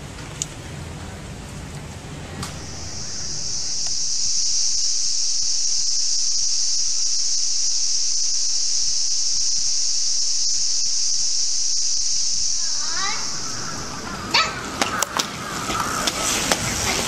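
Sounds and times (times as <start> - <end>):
high-pitched insect drone: 2.5 - 16.1.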